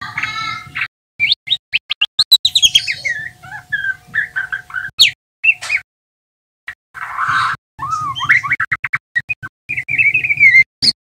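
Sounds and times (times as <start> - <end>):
bird singing chirps and fluted notes: 0.0 - 5.9, 6.7 - 11.0.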